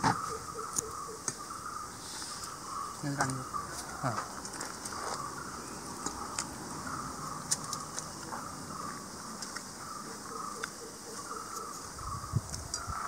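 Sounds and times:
high insect hiss: 0:00.0 - 0:13.0.

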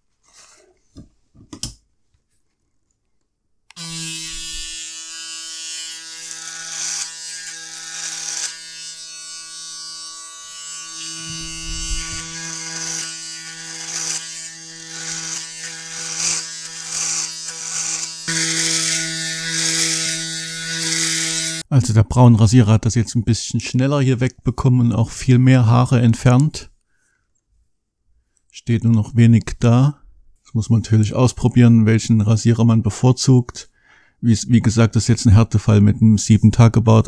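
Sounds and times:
electric shaver humming: 0:03.7 - 0:21.6.

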